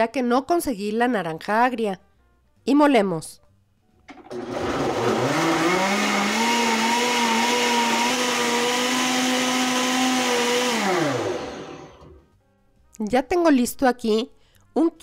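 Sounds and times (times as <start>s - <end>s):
blender motor grinding liquid: 4.2s - 12.2s.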